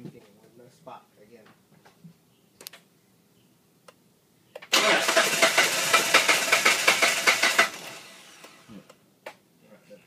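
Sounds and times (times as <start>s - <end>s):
engine cranking on starter: 4.7s - 8.6s.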